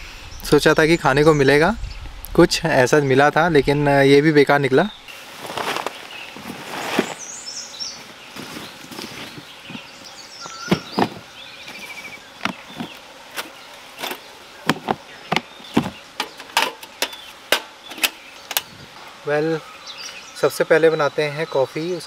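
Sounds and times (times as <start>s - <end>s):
birds chirping: 0.0s - 22.0s
bird trill: 9.9s - 13.0s
sharp clicks and knocks: 12.4s - 18.7s.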